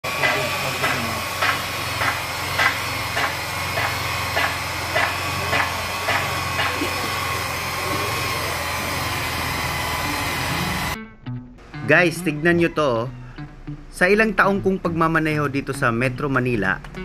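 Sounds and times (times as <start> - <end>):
electric polisher whining: 0.0 - 11.0.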